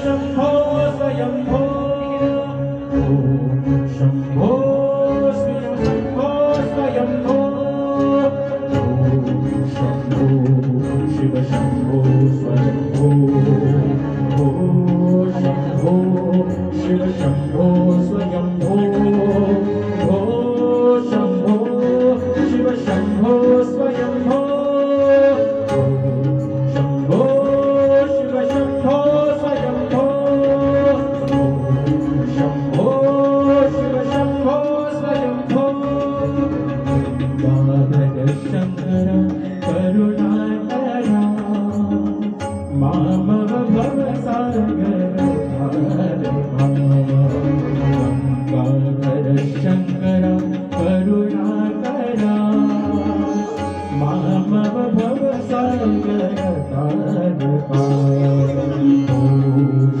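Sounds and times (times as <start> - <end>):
man singing into microphone: 0.0 - 60.0
tabla beat: 0.0 - 60.0.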